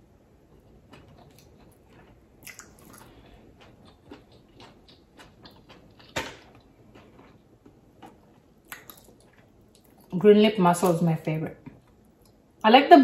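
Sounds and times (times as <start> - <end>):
wet eating clicks and smacks: 0.6 - 10.1.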